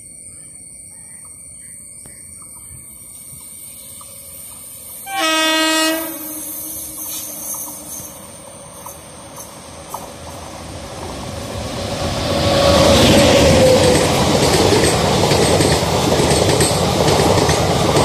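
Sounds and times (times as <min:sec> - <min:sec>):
train rumbling on rails: 0:02.2 - 0:18.0
locomotive horn blast: 0:05.0 - 0:08.2.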